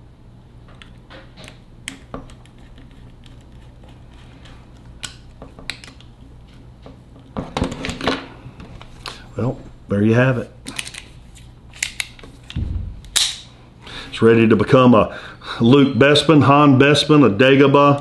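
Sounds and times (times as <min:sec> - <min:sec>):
low hum: 0:12.5 - 0:14.1.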